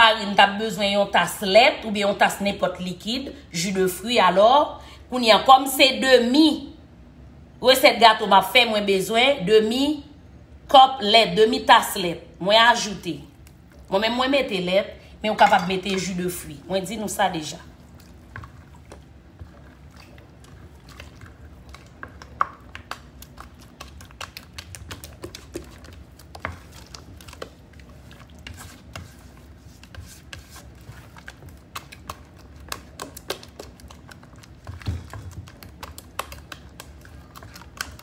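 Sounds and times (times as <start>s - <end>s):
wooden spoon tapping glass bowl: 15.4s - 16.0s.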